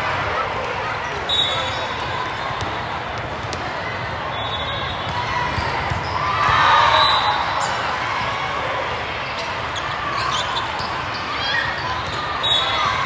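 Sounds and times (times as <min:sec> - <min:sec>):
loud shout or cheer: 0:05.2 - 0:09.1.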